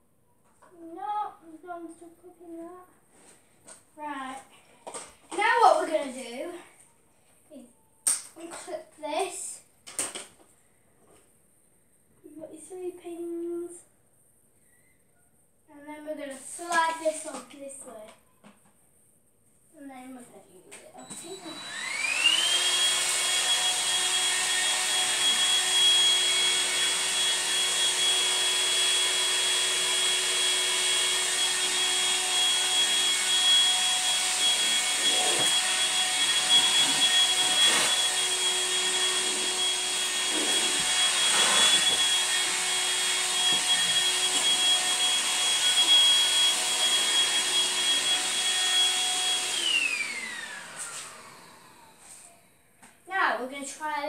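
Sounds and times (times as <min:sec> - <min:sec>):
vacuum cleaner motor whining: 0:21.0 - 0:52.5.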